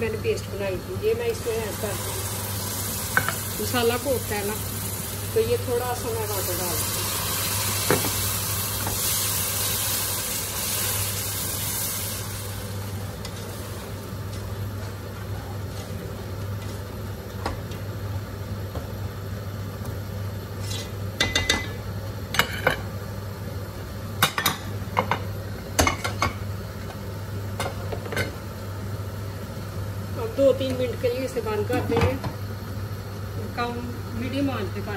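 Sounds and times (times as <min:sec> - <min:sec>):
paste sizzling in hot oil: 0:01.4 - 0:14.0.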